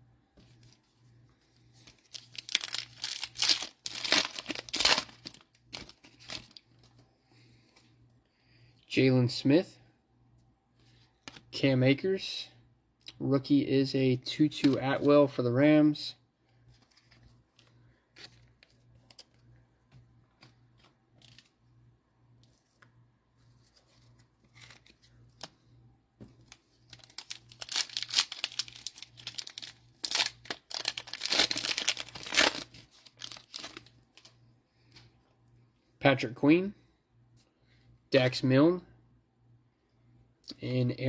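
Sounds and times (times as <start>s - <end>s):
cellophane wrapper crinkling: 1.8s - 6.7s, 26.4s - 34.4s.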